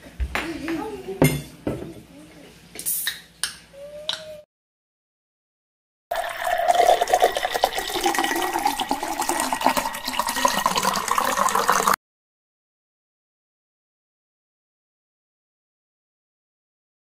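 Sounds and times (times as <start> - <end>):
fizzing bubbles crackling: 6.1 - 12.0
soda pouring over ice: 6.1 - 12.0.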